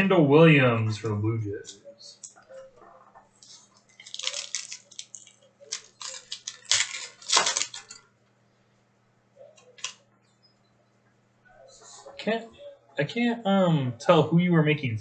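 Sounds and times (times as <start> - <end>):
trading cards crinkling and rustling: 1.7 - 8.0, 9.6 - 10.0.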